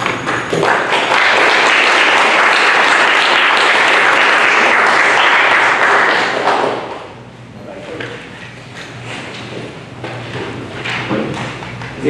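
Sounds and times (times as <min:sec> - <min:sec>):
small group applauding: 0:00.0 - 0:07.2.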